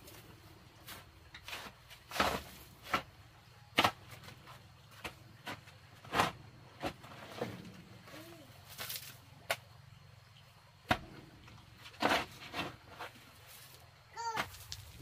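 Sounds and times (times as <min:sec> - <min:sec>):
shovel scraping gravel mix: 0:00.0 - 0:03.1, 0:08.6 - 0:09.2, 0:11.8 - 0:15.0.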